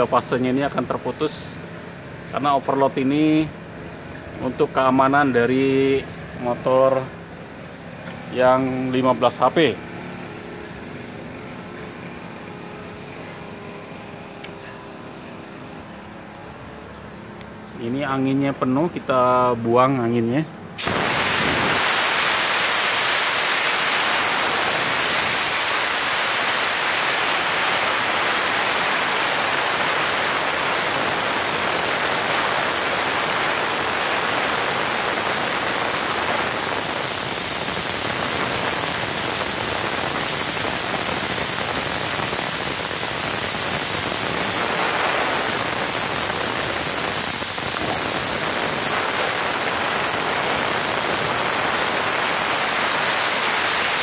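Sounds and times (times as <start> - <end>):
compressed air hissing: 20.7 - 54.0.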